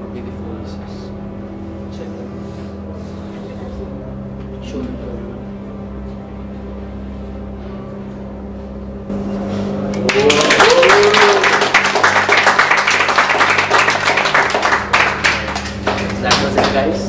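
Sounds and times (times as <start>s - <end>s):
audience applauding: 9.9s - 17.0s
short cheer: 10.0s - 12.2s.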